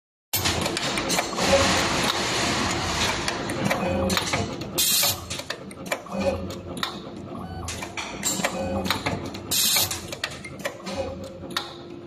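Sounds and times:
pneumatic air hisses: 4.8 - 5.2, 9.5 - 9.9.

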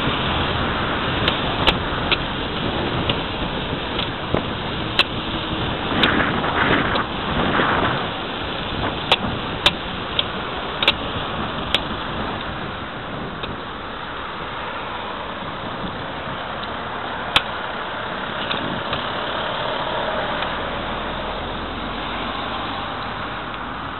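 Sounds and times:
tyre and engine rumble: 0.0 - 23.9
sharp clicks: 1.2 - 2.3, 4.9 - 5.2, 8.7 - 12.5.

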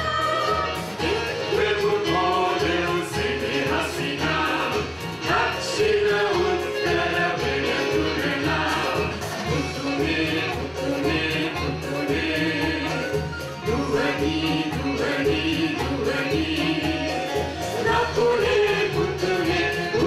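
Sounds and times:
steady rhythmic beat: 0.0 - 20.0
voices singing together: 0.0 - 20.0.

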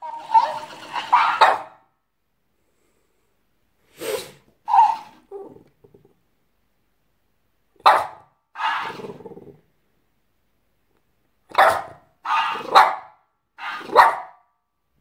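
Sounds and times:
dog barking: 0.0 - 1.9, 4.7 - 5.1, 7.8 - 9.0, 11.5 - 14.5.

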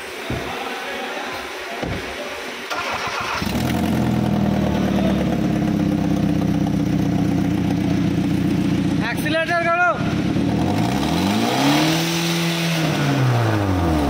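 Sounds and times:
car engine starting and idling: 2.7 - 9.4, 10.0 - 14.0.

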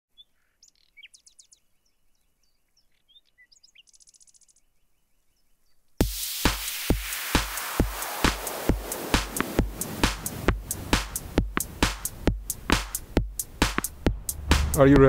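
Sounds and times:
birds chirping: 0.1 - 15.0
electronic dance music: 6.0 - 15.0.

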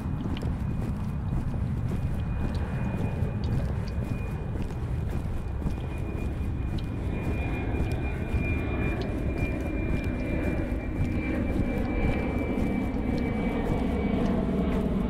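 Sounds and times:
airplane high whine: 0.0 - 15.0
airplane low rumble: 0.0 - 15.0.

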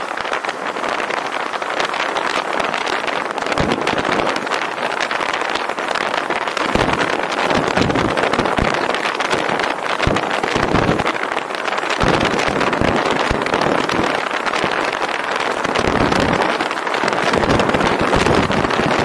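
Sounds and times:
wind gusts buffeting microphone: 0.0 - 19.0
wind rushing: 2.5 - 19.0.

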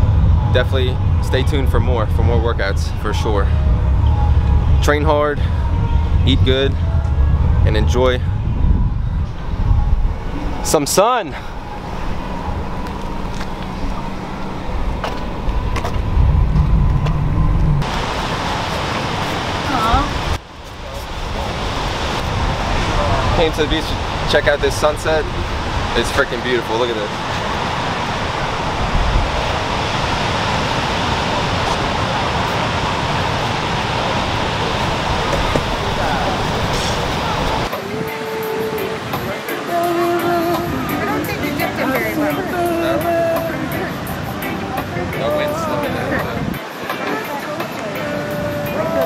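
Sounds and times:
car engine and road rumble: 0.0 - 37.7
steady low hum: 0.0 - 37.7
ocean surf: 0.0 - 49.0
wind on microphone: 0.0 - 49.0.

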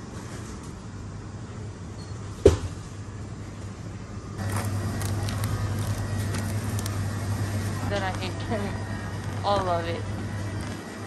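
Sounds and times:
supermarket background hum: 0.0 - 11.0
shopping trolley rolling on tiles: 4.4 - 11.0.

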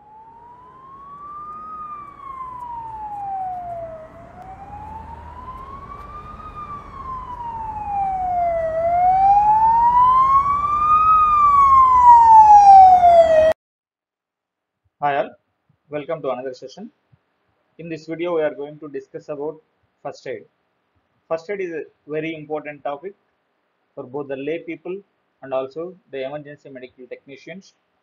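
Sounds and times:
emergency vehicle siren wailing: 0.0 - 13.6.

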